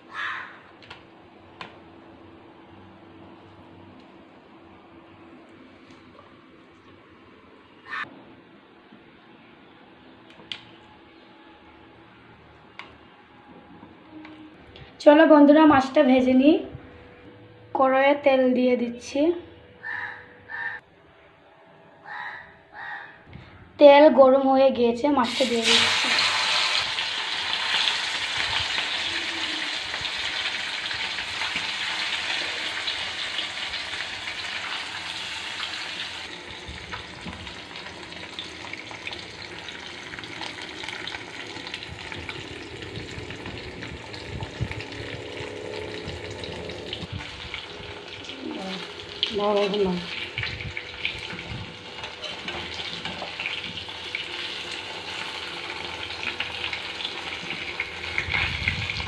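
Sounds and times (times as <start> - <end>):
fish deep-frying in oil: 25.2 - 59.0.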